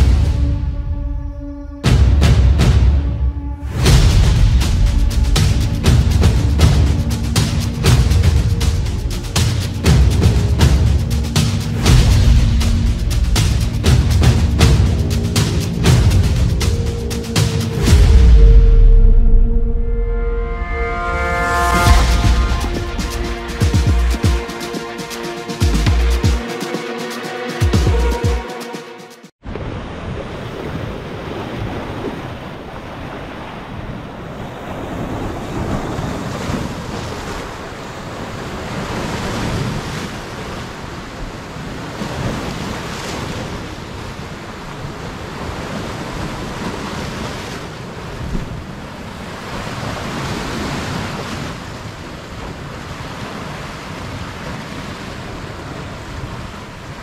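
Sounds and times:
waves breaking on rocks: 0:29.5 - 0:57.0.

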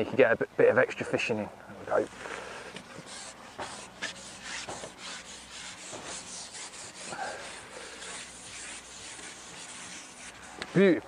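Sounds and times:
fishing pole rubbing and scraping: 0:02.1 - 0:10.8.

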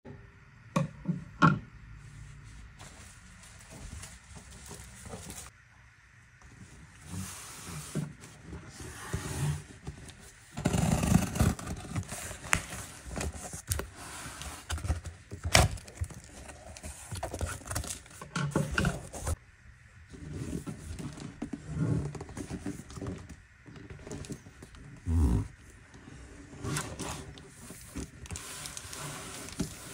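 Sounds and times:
box sliding out of carton: 0:07.0 - 0:15.0.

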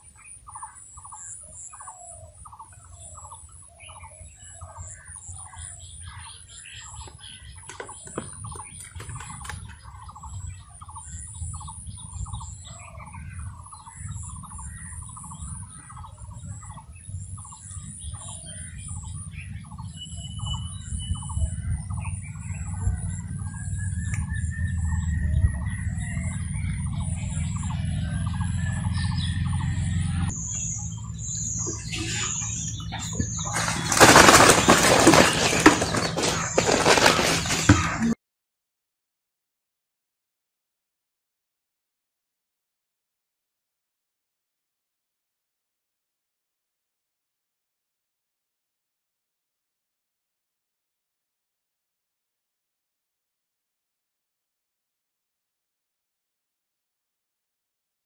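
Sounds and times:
birds calling: 0:00.0 - 0:38.2.

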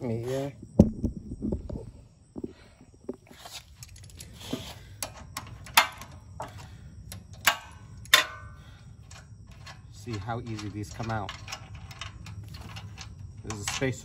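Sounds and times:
wrench clicking on metal bolts: 0:07.1 - 0:14.0.

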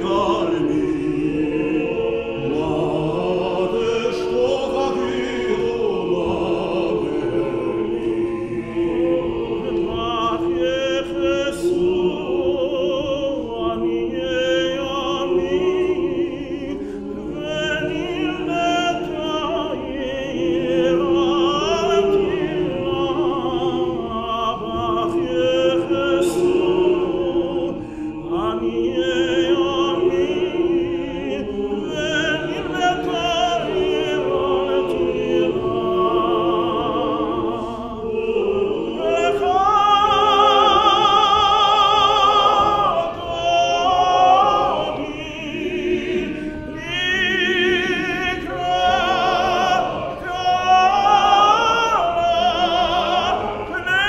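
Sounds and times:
men's choir holding notes: 0:00.0 - 0:54.0.

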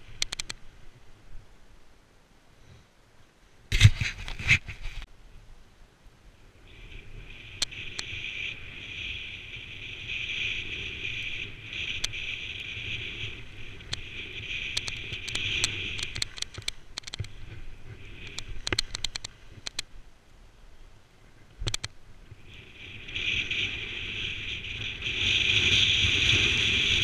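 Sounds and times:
sharp clicks and knocks: 0:00.0 - 0:00.6, 0:14.7 - 0:17.4, 0:18.2 - 0:19.9, 0:21.6 - 0:22.0
wind on microphone: 0:06.5 - 0:20.0, 0:21.2 - 0:27.0
skis hissing over snow: 0:06.6 - 0:16.1, 0:22.2 - 0:27.0.

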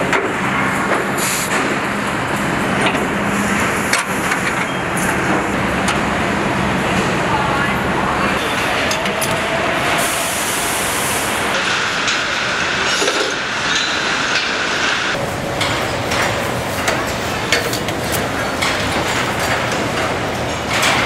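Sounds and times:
conveyors and machinery noise: 0:00.0 - 0:21.0
metallic clicks and clanks: 0:15.6 - 0:21.0.

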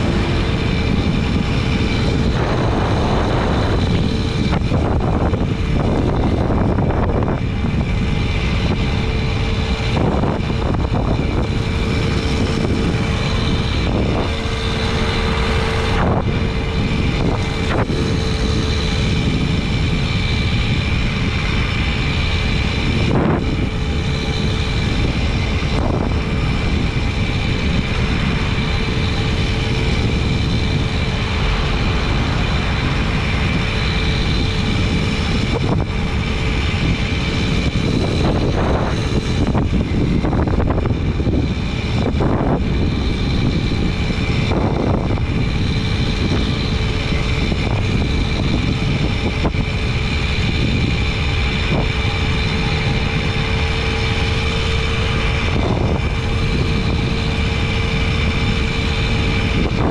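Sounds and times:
moped engine buzzing: 0:00.0 - 0:59.9
wind on microphone: 0:00.0 - 0:59.9.

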